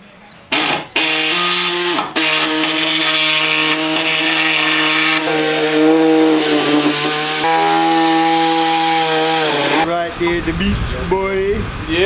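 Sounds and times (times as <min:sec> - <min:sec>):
grinding hiss: 0:00.5 - 0:09.9
power tool motor whine: 0:00.5 - 0:09.9.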